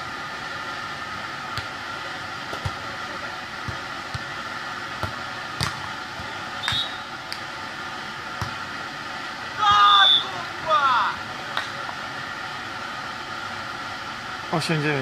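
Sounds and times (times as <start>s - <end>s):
steady background hiss: 0.0s - 15.0s
volleyball being struck: 2.5s - 2.8s, 5.0s - 7.0s, 8.4s - 8.6s.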